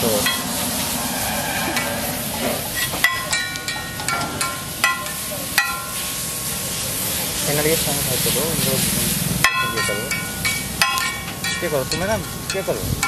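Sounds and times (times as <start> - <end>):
onions sizzling on a griddle: 0.0 - 13.0
metal spatula scraping: 0.1 - 4.4
spatula clanking on griddle: 2.8 - 6.1, 9.4 - 13.0.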